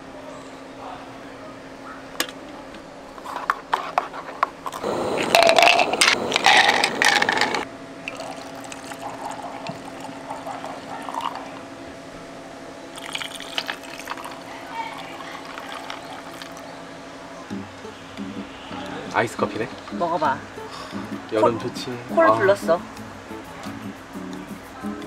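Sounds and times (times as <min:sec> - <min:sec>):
liquid pouring into cup: 0:04.7 - 0:11.6, 0:13.0 - 0:16.7.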